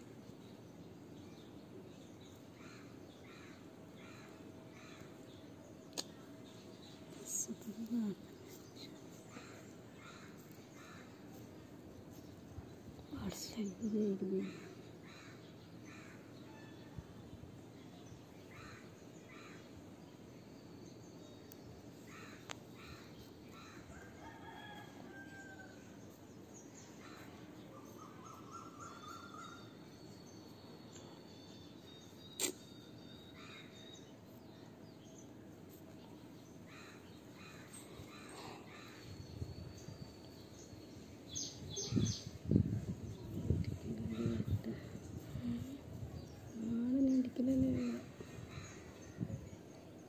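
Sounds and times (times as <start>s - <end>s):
birds chirping: 0.3s - 50.0s.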